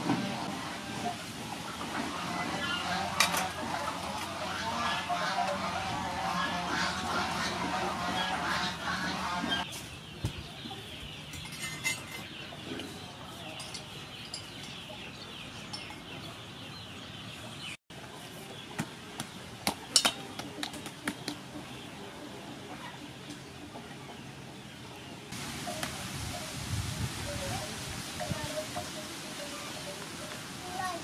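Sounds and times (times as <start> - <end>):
birds calling: 0.0 - 31.0.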